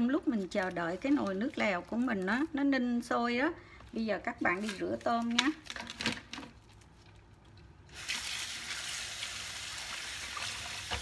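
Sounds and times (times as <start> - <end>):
tap water running into bowl: 7.9 - 11.0.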